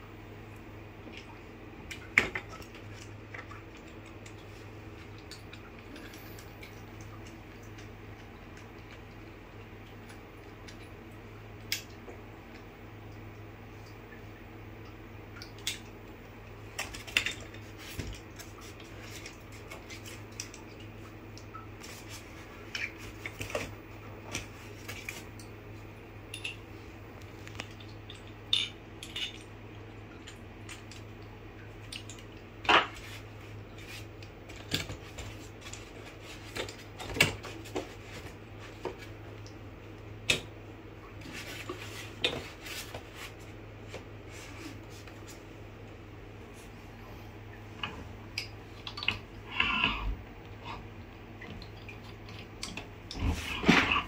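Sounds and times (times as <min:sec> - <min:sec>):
steady low hum: 0:00.0 - 0:54.0.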